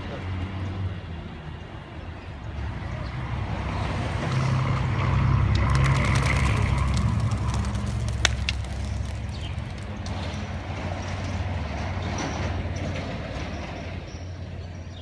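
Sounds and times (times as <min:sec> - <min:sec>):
pigeon wings clapping: 0:05.6 - 0:10.4.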